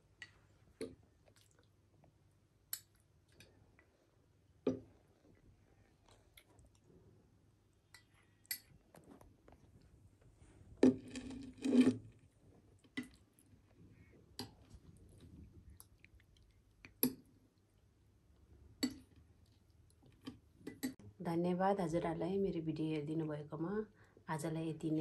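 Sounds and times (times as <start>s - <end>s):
soft eating sounds: 0.0s - 21.0s
metal spoon scraping glass bowl: 11.0s - 12.0s.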